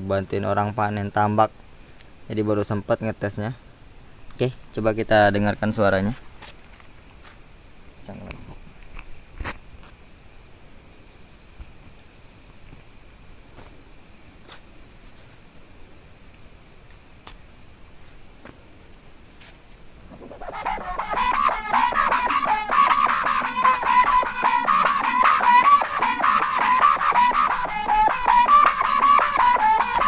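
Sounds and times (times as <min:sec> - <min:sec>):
crickets chirping: 0:00.0 - 0:30.0.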